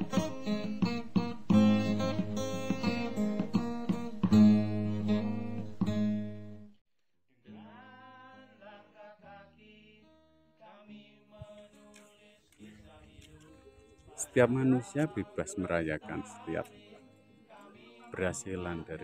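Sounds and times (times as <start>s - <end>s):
acoustic guitar strumming: 0.0s - 6.8s.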